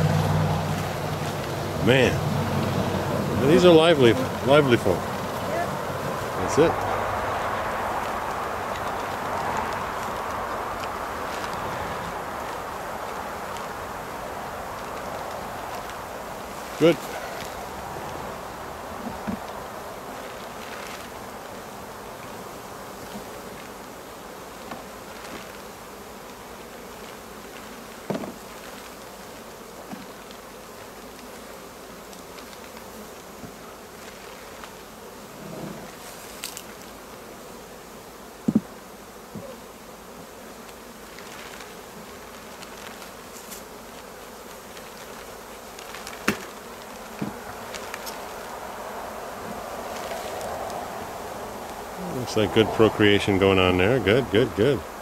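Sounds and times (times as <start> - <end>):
honeybees buzzing: 0.0 - 55.0.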